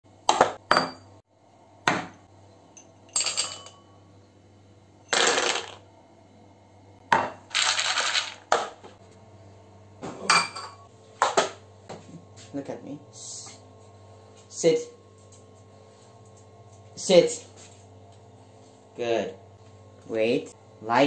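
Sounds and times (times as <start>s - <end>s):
bowls knocking on countertop: 0.3s - 1.1s, 7.1s - 7.4s.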